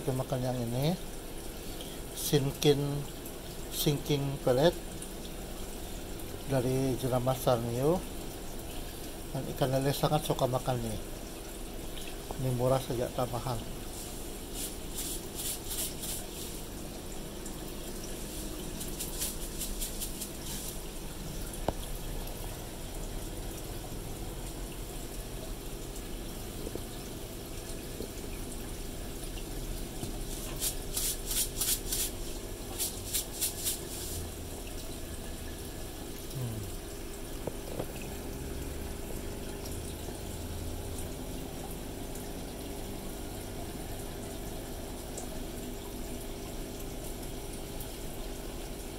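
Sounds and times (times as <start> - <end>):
air pump and filter hum: 0.0 - 48.9
aquarium air stone bubbling: 0.0 - 48.9.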